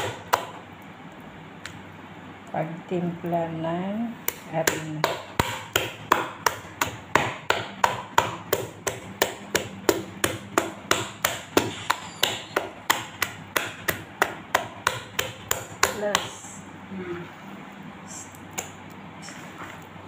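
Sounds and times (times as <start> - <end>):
hand slapping wet batter: 4.2 - 16.4.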